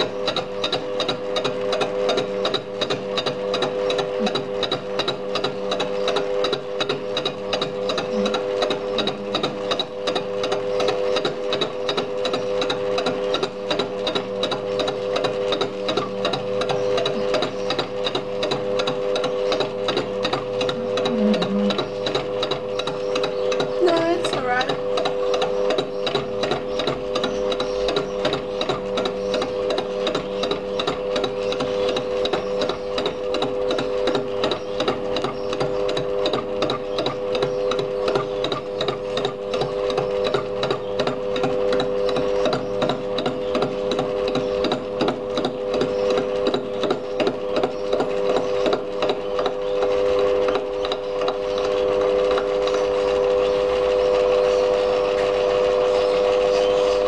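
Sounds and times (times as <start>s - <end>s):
fly cutter ticking on iron: 0.0s - 54.0s
lathe machine whine: 0.0s - 57.0s
birds chattering: 16.1s - 52.0s, 55.8s - 57.0s.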